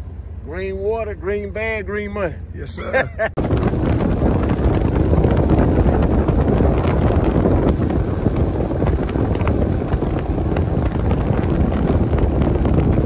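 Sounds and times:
boat running on water: 0.0 - 13.0
wind buffeting microphone: 3.2 - 13.0.

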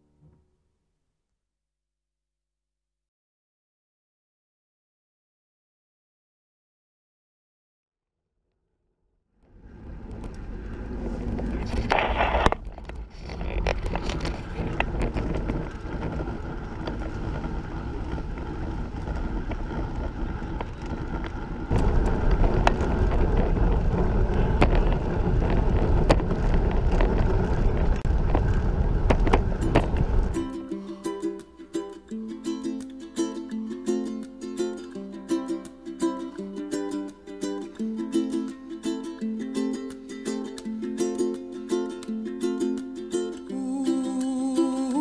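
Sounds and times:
tyres rumbling on concrete: 10.2 - 30.5.

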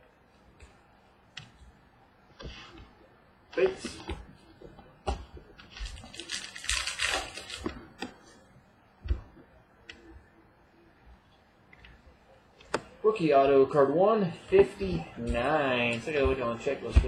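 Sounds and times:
wrapper crinkling: 5.6 - 8.0.

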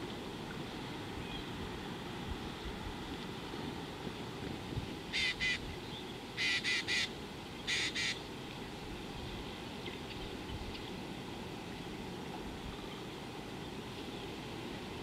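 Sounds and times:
low background noise: 0.0 - 15.0
bird giving harsh calls: 5.1 - 5.6, 6.4 - 7.1, 7.7 - 8.2.

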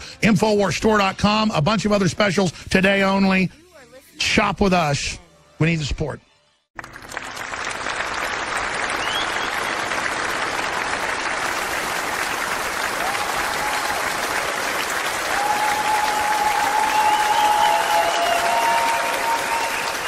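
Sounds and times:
crowd applause: 6.8 - 20.0.

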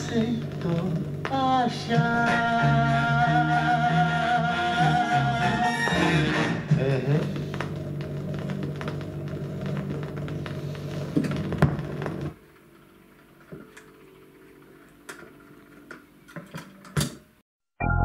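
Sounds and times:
song on record player: 0.0 - 12.4.

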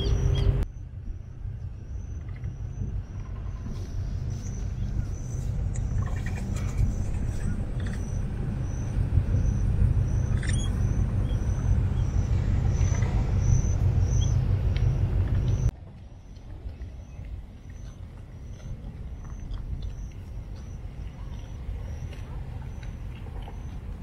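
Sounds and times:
high repeating chirp: 0.0 - 0.6, 7.7 - 15.7
heavy low rumble: 0.0 - 24.0.

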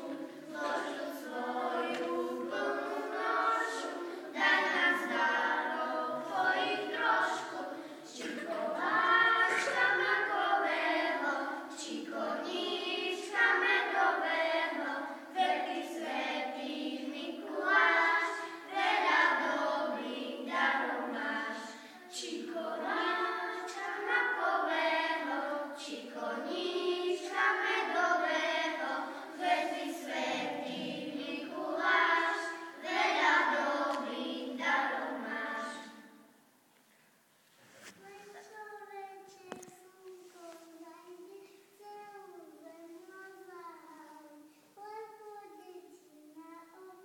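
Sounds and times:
children singing: 0.0 - 36.2.

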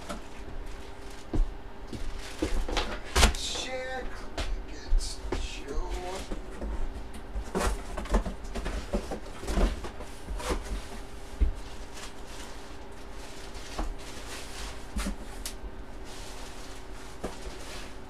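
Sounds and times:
steady electrical hum: 0.0 - 18.0.

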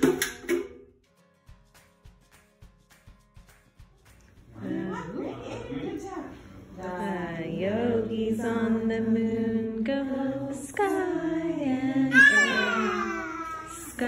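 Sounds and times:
person singing slow tune: 6.7 - 14.0.

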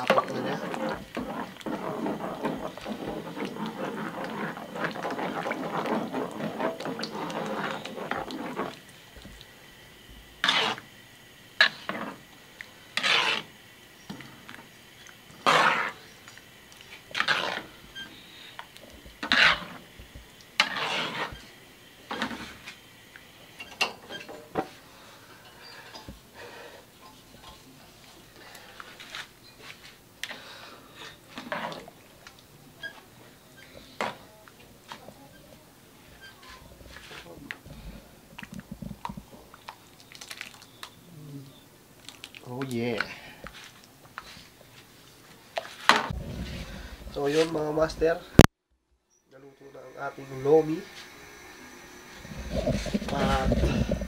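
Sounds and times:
ladle scraping strokes: 0.0 - 9.4, 10.4 - 10.9, 11.6 - 13.6, 15.3 - 22.8, 31.0 - 32.0, 45.6 - 47.9, 49.3 - 54.0
ladle stirring soup in wok: 0.0 - 9.6, 10.2 - 11.0, 11.6 - 41.0.

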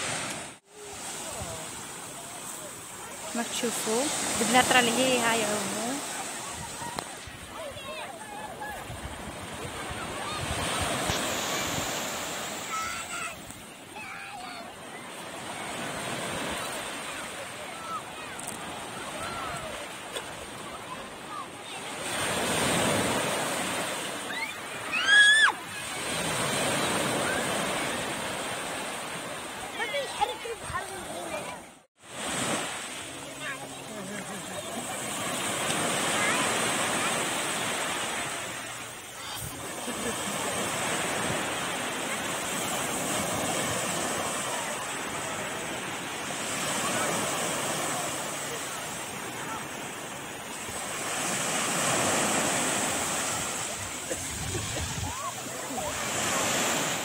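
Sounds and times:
small waves breaking: 0.0 - 57.0
child squealing: 24.3 - 25.6.

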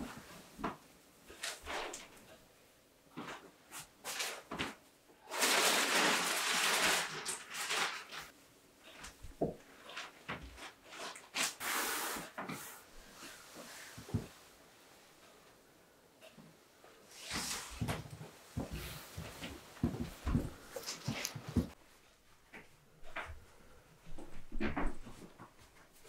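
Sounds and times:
rustling scrape: 1.3 - 2.2, 5.3 - 9.0, 9.8 - 14.4, 17.1 - 21.8.

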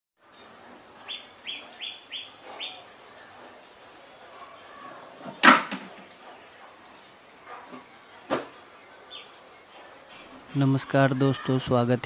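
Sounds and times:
small bird chirping: 1.0 - 3.0, 8.9 - 9.6.

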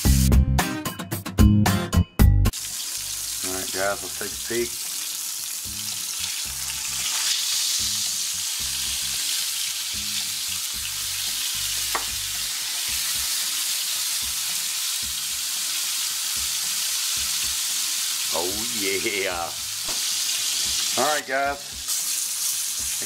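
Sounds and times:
patties sizzling in a skillet: 2.5 - 23.0.

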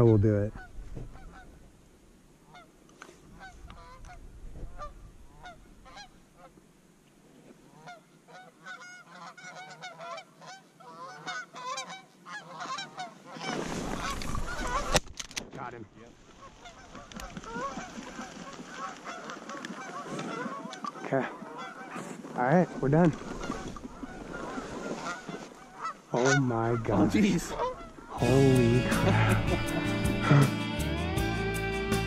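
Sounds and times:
geese honking: 0.0 - 1.6, 3.4 - 6.5, 7.7 - 15.0, 16.3 - 32.0
loud rustle of movement: 13.3 - 15.2, 16.2 - 26.0.

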